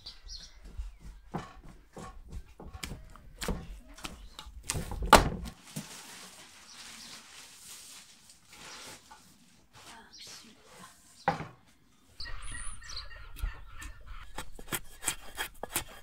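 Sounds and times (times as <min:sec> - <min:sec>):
cloth and plastic rustling: 0:04.7 - 0:11.2.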